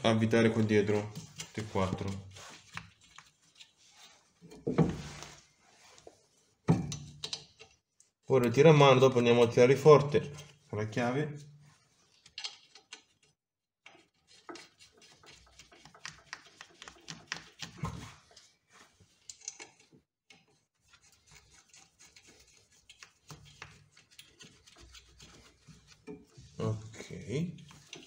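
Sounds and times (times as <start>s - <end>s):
small metal clicks and rubbing: 6.9s - 8.1s, 12.1s - 14.8s, 19.2s - 20.5s.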